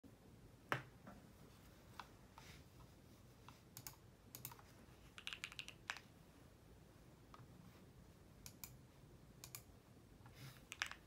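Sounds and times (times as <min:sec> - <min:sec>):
mechanical keyboard typing: 0:03.8 - 0:06.1, 0:10.6 - 0:11.0.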